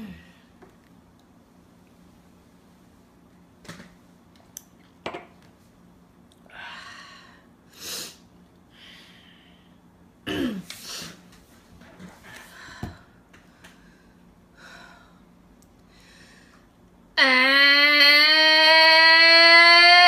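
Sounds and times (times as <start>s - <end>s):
woman coughing: 10.2s - 10.7s.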